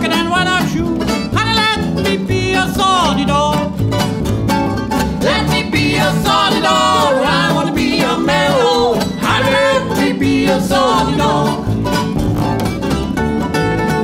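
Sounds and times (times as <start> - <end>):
acoustic guitar: 0.0 - 14.0
mandolin: 0.0 - 14.0
upright bass: 0.0 - 14.0.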